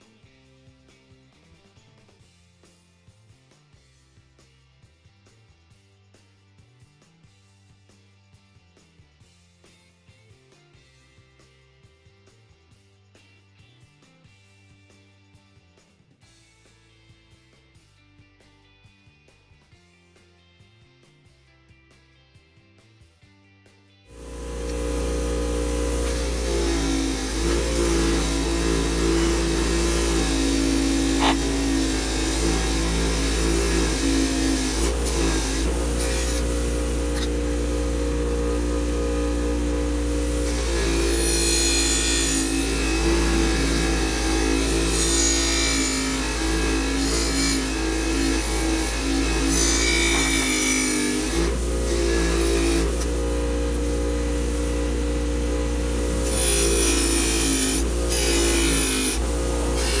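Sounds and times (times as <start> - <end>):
bench grinder motor hum: 24.1 - 60.0
wire brush scratching metal: 24.3 - 60.0.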